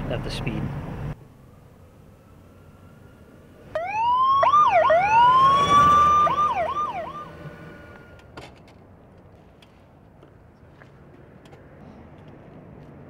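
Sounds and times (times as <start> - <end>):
electronic siren wailing and yelping: 3.7 - 7.5.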